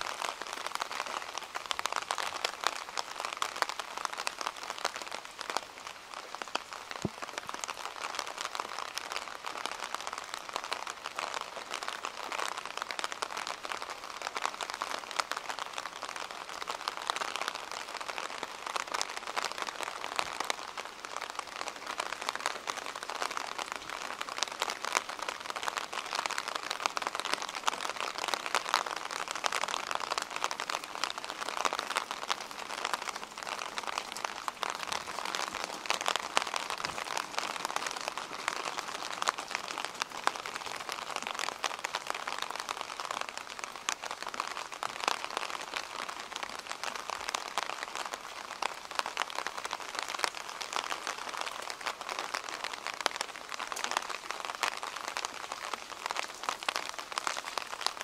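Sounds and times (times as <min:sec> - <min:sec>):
steady rain falling: 0:00.0 - 0:58.0
raindrop clicks: 0:06.5 - 0:09.5, 0:22.2 - 0:58.0.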